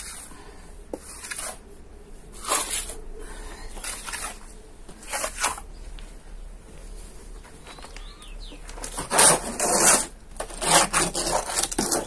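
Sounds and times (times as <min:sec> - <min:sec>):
plastering tool scraping plaster: 0:00.9 - 0:01.6, 0:02.4 - 0:03.0, 0:03.7 - 0:05.6, 0:08.8 - 0:12.0.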